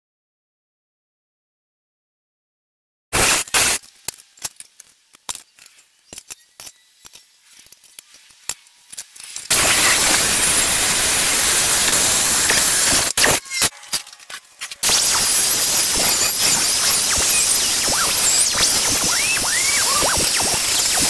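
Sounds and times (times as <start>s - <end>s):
abrasive saw grinding steel: 9.5s - 20.1s.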